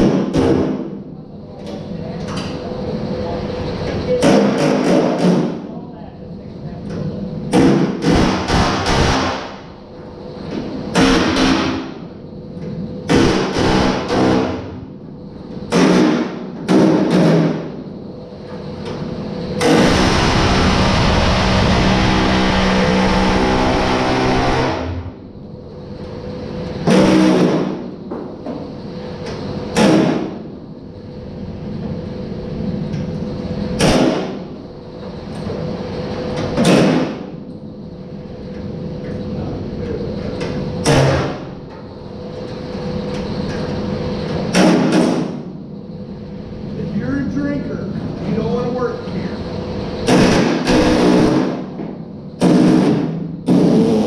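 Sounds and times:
steady hum: 0.0 - 54.0
pneumatic tool on sheet metal: 7.5 - 9.7, 10.9 - 11.9, 13.1 - 14.7, 19.6 - 25.1, 26.8 - 27.8, 29.8 - 30.4, 50.0 - 51.7, 52.4 - 54.0.

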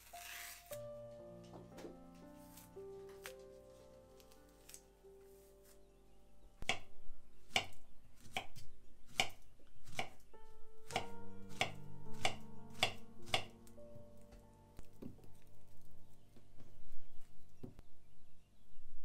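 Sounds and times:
knife tapping cutting board: 10.9 - 13.5.

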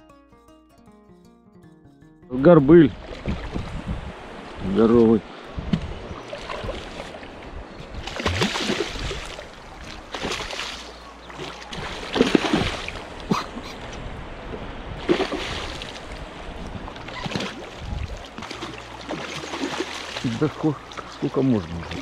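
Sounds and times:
fish thrashing and splashing water: 6.2 - 7.2, 8.0 - 13.4, 15.0 - 16.2, 16.9 - 22.0.

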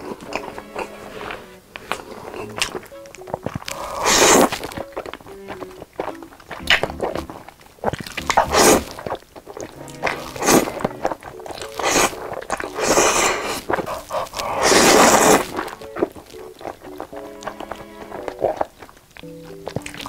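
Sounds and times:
wet chewing: 0.0 - 20.0
person slurping noodles: 3.6 - 4.7, 8.1 - 15.8.

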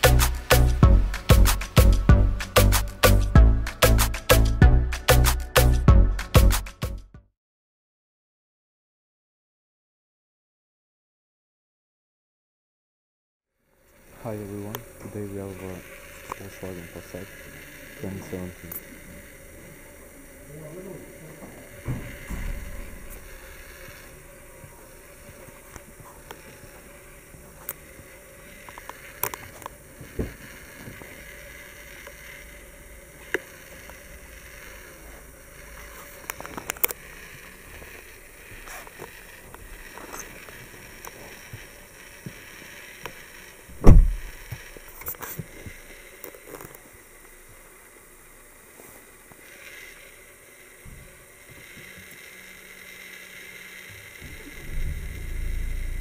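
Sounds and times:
car door clicks and knocks: 43.7 - 44.3
car door slamming shut: 43.8 - 44.4.

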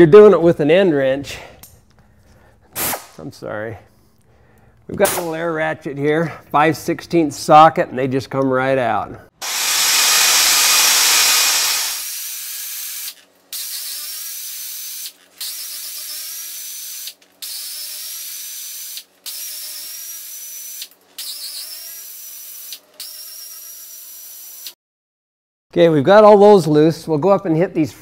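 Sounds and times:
air ratchet whine: 9.4 - 24.8.

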